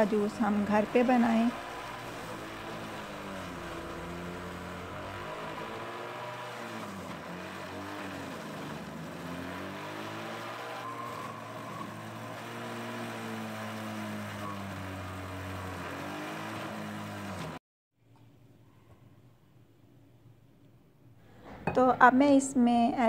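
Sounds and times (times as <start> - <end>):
juicer motor humming: 0.0 - 17.6.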